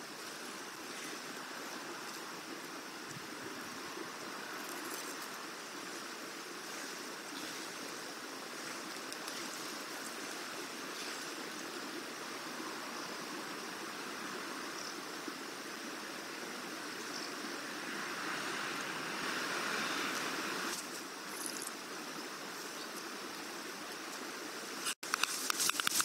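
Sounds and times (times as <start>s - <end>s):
steady outdoor rushing noise: 15.2s - 26.0s.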